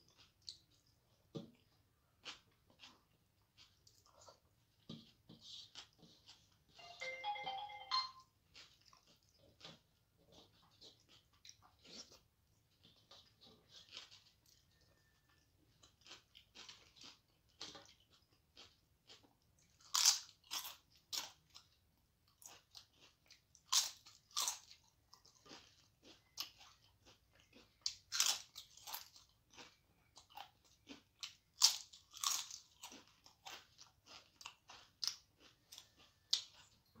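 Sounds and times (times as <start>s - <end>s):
crunching and chewing crisp wafer: 0.0s - 6.8s, 8.3s - 37.0s.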